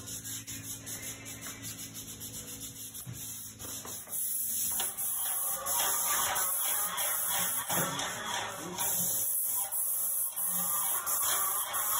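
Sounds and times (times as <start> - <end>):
hand rubbing a surface: 0.0 - 7.6.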